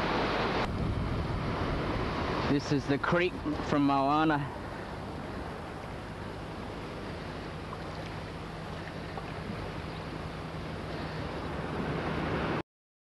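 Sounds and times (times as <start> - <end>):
wind on microphone: 0.0 - 3.8
low hum: 0.0 - 12.6
surf: 0.0 - 12.6
running water: 1.7 - 12.6.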